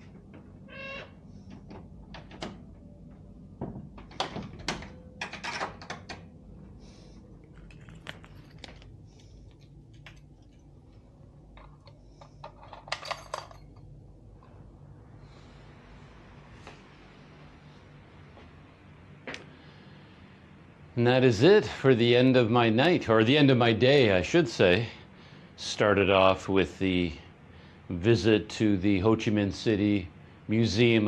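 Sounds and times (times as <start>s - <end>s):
low steady hum: 0.0s - 31.0s
door and objects clattering: 3.6s - 6.3s.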